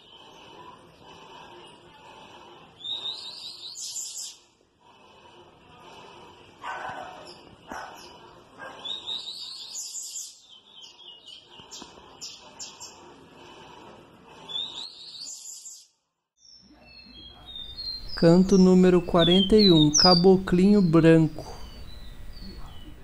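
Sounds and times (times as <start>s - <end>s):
meadowlark singing: 17.0s - 23.0s.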